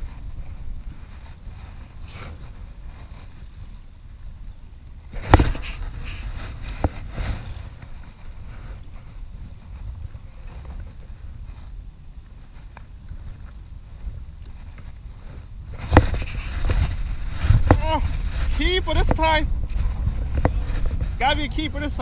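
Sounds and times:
choppy water: 0.0s - 22.0s
wind rumble: 0.0s - 22.0s.

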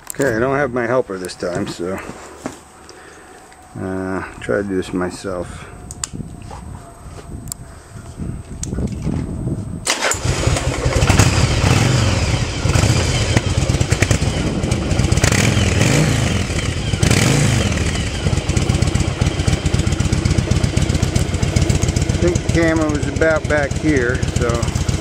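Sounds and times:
electric starter cranking: 9.8s - 14.6s
motorcycle engine revving: 9.9s - 25.0s.

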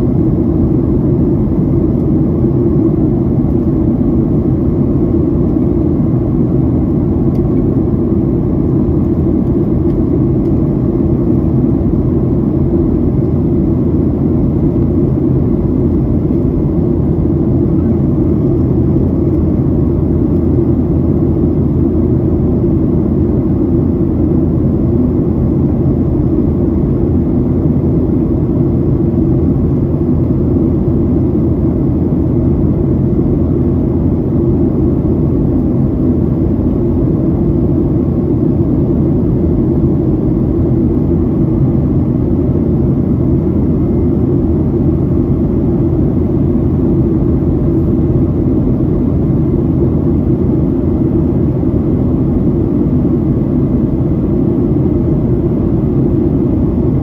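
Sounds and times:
jet engine and airflow cabin noise: 0.0s - 57.0s.

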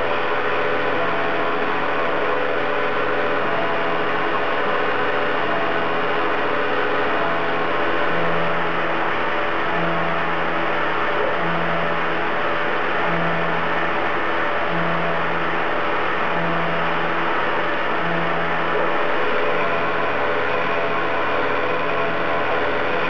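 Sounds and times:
milling machine spindle whirring: 0.0s - 23.0s.

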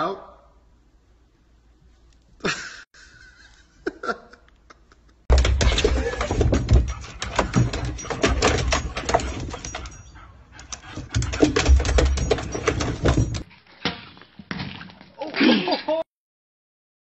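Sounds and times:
paws clattering on plastic: 5.3s - 13.4s.

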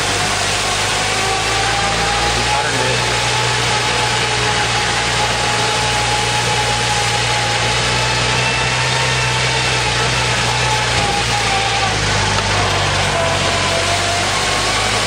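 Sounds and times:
jeep engine running: 0.0s - 15.0s.

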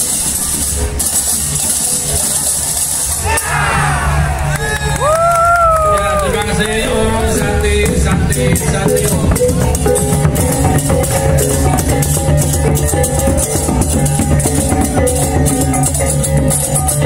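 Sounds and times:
hand cymbals clashing rapidly: 0.0s - 3.4s, 7.0s - 17.0s
drums: 0.0s - 6.3s, 7.0s - 17.0s.

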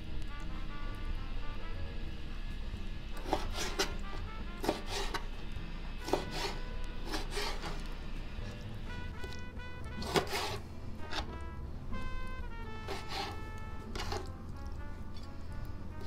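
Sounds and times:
knife cutting on plastic board: 3.2s - 5.3s, 6.0s - 7.9s, 9.9s - 11.4s, 12.8s - 14.4s.

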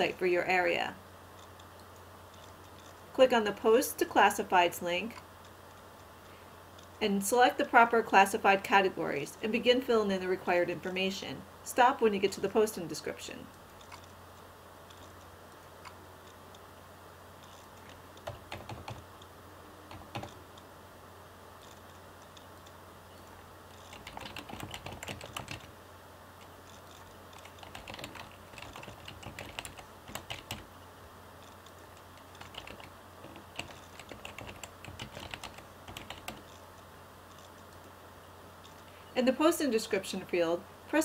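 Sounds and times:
low steady hum: 0.0s - 41.0s
computer keyboard typing: 17.4s - 19.3s, 19.9s - 20.6s, 21.6s - 25.8s, 26.4s - 30.7s, 31.4s - 36.6s.

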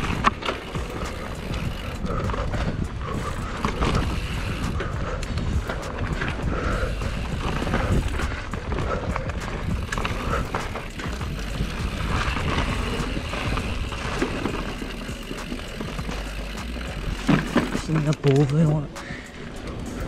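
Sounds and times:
wind rumble on microphone: 0.0s - 15.0s
bike rattles and knocks: 0.0s - 20.0s
bike tyres over leaves and roots: 0.0s - 20.0s.

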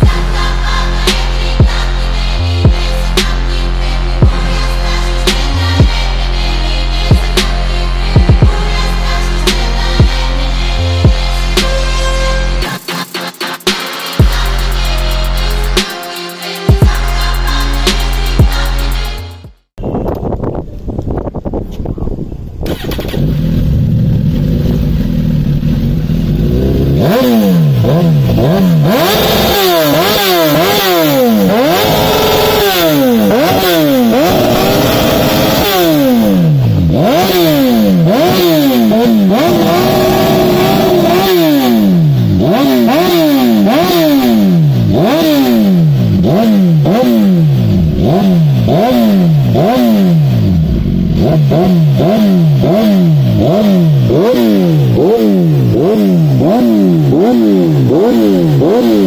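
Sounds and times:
motorcycle engine revving: 0.0s - 19.5s, 22.6s - 59.0s.

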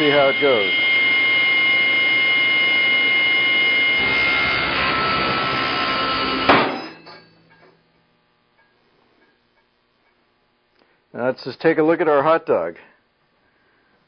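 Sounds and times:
table saw whining: 0.0s - 7.6s.

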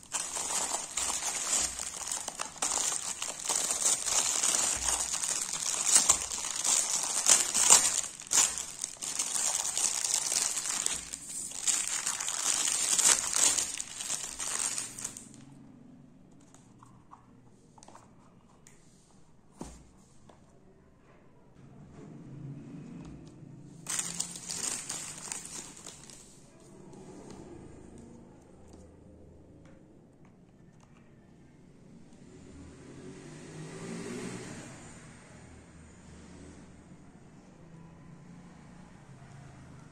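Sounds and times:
faint handling sounds: 0.0s - 15.4s, 16.3s - 20.6s, 23.8s - 28.9s
plastic packaging crinkling: 0.0s - 15.4s, 23.8s - 26.4s.

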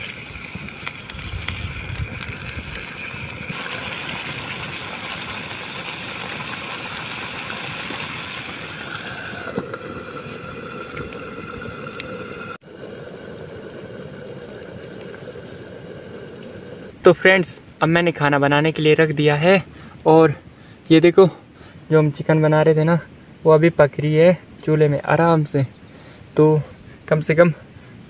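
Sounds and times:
curry sizzling in a frying pan: 0.0s - 12.6s
burning sticks crackling: 0.0s - 22.3s.

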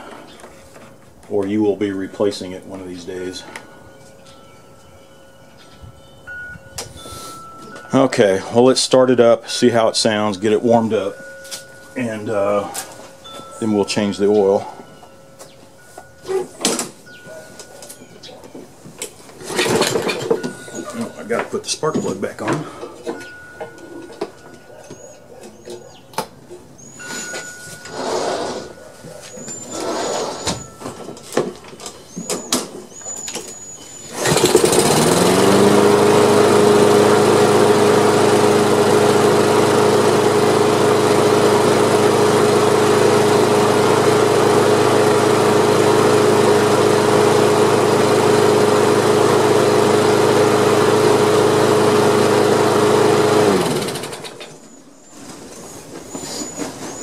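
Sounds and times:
lawn mower engine running: 6.3s - 24.5s, 27.0s - 28.8s, 29.6s - 32.0s, 33.1s - 54.7s.

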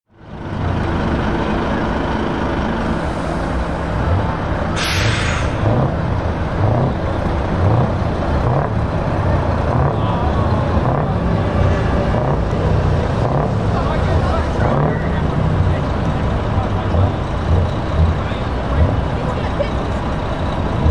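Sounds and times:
diesel lorry engines running: 0.1s - 20.9s
engine revving: 3.5s - 20.9s
air brake hiss: 4.7s - 5.7s.

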